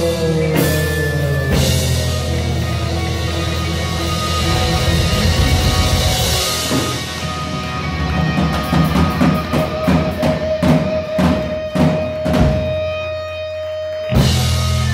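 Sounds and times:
electric guitars and bass: 0:00.0 - 0:14.9
drum kit hits: 0:04.2 - 0:13.1.

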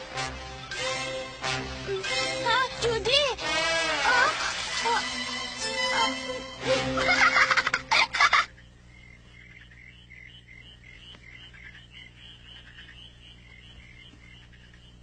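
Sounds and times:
low steady hum: 0:00.0 - 0:15.0
small animals chirping: 0:08.2 - 0:15.0.

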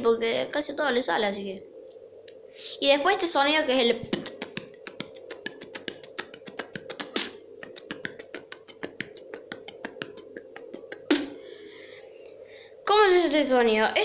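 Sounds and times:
beatbox hit: 0:04.0 - 0:11.6
beatboxed mouth clicks: 0:04.0 - 0:11.6.

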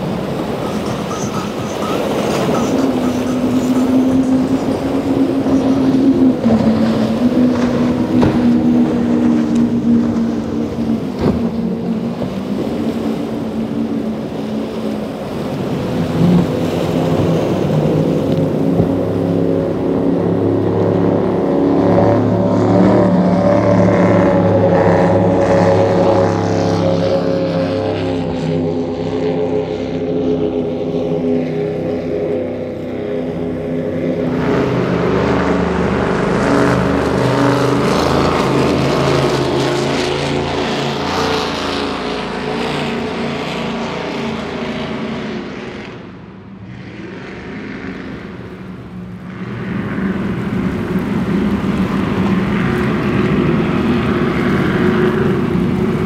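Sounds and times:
powerboat engines at high speed: 0:00.0 - 0:56.0
rushing water and spray: 0:00.0 - 0:56.0.

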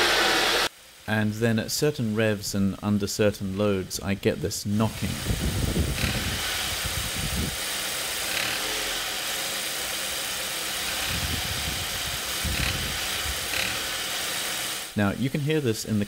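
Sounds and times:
rapid knocking rattle: 0:10.8 - 0:14.0.

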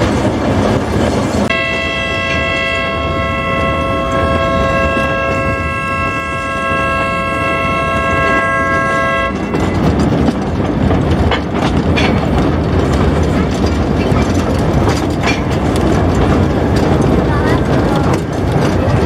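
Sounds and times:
train running on rails: 0:00.0 - 0:19.0
train horn chord: 0:01.5 - 0:09.5
sharp rail clacks: 0:07.3 - 0:19.0.

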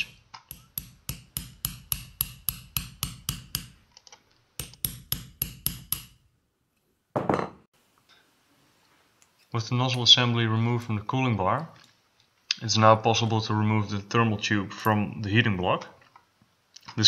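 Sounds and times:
hammer tapping metal punch: 0:00.0 - 0:03.8, 0:04.6 - 0:06.2.

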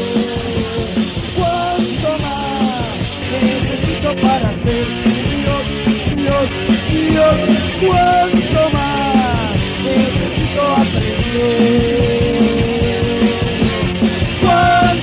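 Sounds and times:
drums hitting: 0:00.0 - 0:15.0
punk rock band playing: 0:00.0 - 0:15.0.

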